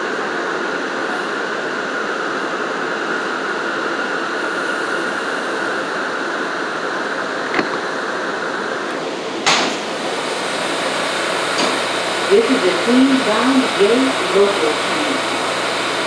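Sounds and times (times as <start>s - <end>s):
subway car hum and hiss: 0.0s - 16.0s
train doors clattering open: 10.6s - 12.1s.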